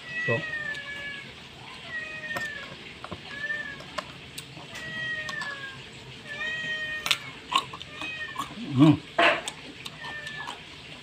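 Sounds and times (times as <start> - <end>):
cat meowing: 0.0 - 3.8, 4.7 - 8.7, 9.9 - 10.6
carrot crunching being chewed: 7.0 - 11.0.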